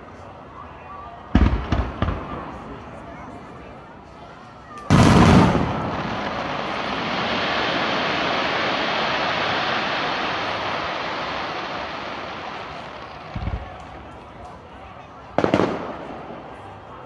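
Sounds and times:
firework crackling hiss: 4.9 - 14.2.

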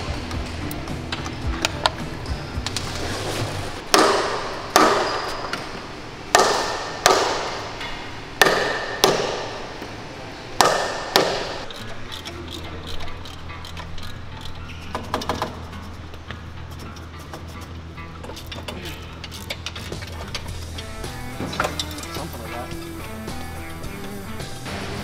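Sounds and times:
hammer striking metal: 3.9 - 9.8, 10.6 - 11.7.

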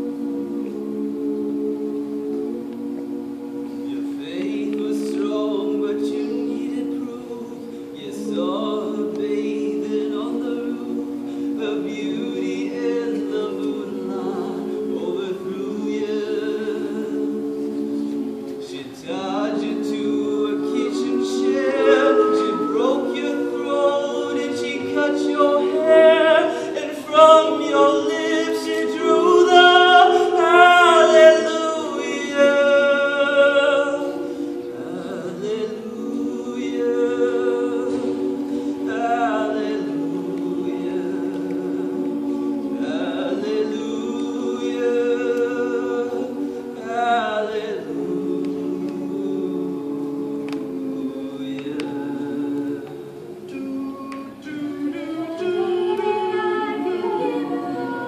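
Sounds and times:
a cappella group singing in harmony: 0.0 - 58.0.

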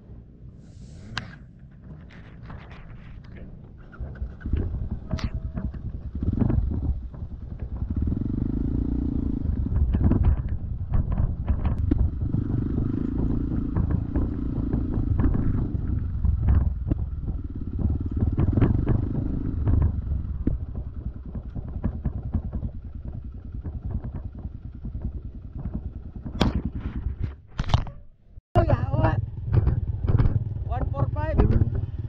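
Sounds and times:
bike knocking and clattering: 1.3 - 32.0
dirt bike engine revving: 4.4 - 10.4, 11.7 - 16.2.

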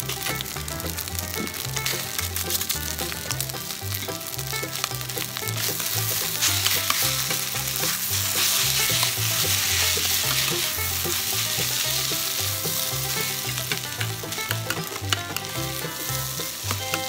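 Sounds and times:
rice sizzling in a pan: 0.0 - 17.0
metal spatula scraping a pan: 5.7 - 17.0
spatula clicking against pan: 13.1 - 17.0.

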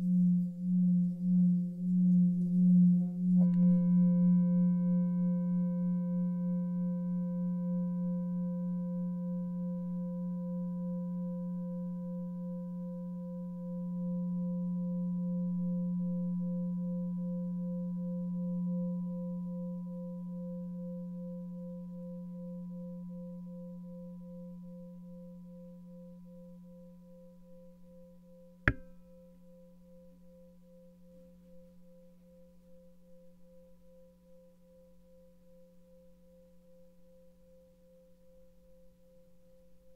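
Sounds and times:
singing bowl ringing: 2.6 - 9.8
sharp click: 28.7 - 29.0.

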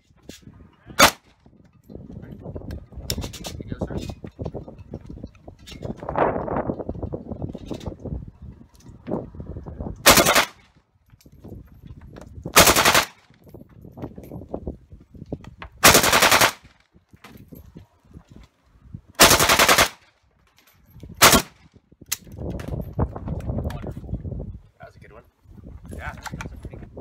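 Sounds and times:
automatic rifle bursts: 10.0 - 10.6, 12.6 - 13.2, 15.8 - 16.6, 19.2 - 20.0, 21.2 - 21.6.

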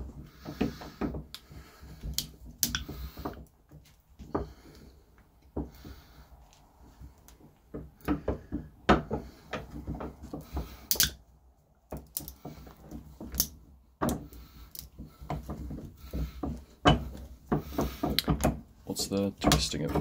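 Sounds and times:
bolt croppers clicking on metal: 10.9 - 11.2, 12.1 - 12.4.

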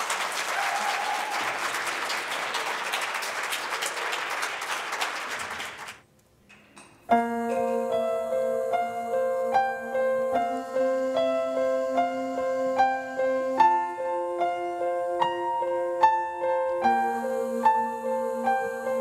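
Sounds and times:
audience applauding: 0.0 - 6.0
piano playing held chords: 7.1 - 19.0.

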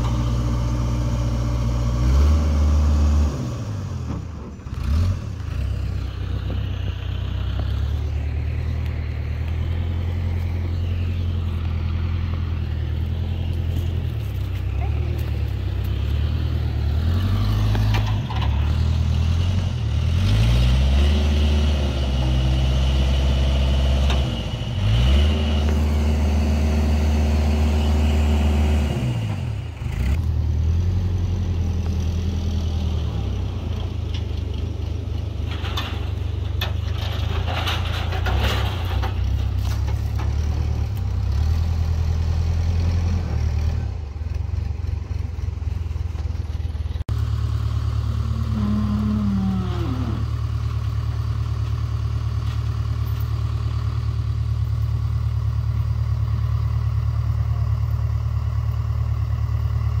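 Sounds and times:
backhoe engine running: 0.0 - 60.0
clattering: 35.4 - 40.5.

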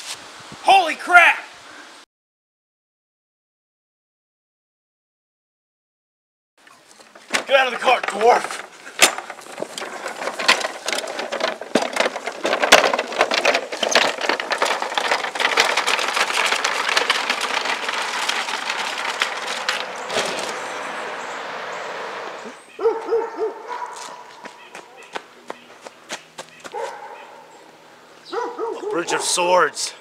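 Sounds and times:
wagon rattling over lawn: 6.6 - 21.5.

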